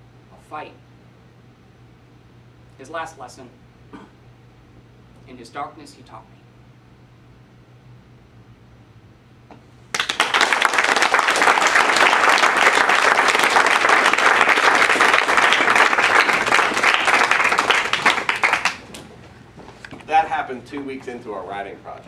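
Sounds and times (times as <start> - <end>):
small audience applauding: 9.9 - 19.1.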